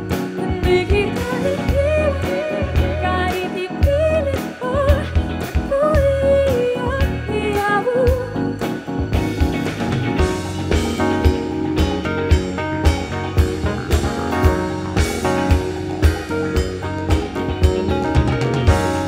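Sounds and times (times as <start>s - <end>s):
drum kit steady beat: 0.0s - 19.0s
keyboard: 0.0s - 19.0s
woman singing: 0.4s - 8.6s.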